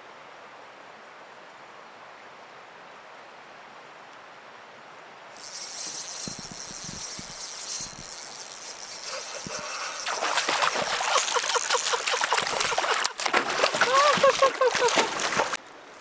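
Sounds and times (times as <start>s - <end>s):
fishing reel running: 5.4s - 13.1s
fish splashing at surface: 8.4s - 15.6s.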